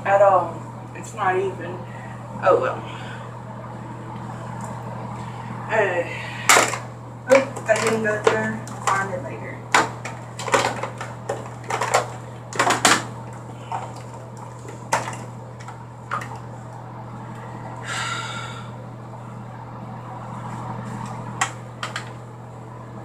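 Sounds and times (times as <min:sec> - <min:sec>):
steady low hum: 0:00.0 - 0:23.0
cases clicking and tapping: 0:06.5 - 0:16.5, 0:21.4 - 0:22.2.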